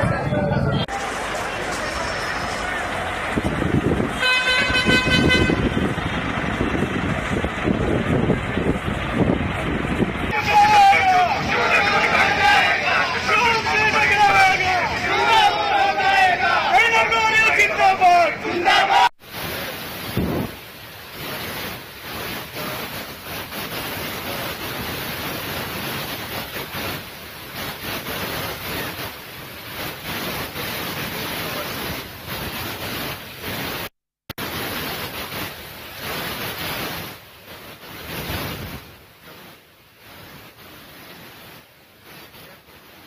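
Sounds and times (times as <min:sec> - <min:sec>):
wind buffeting microphone: 0:03.2 - 0:10.4.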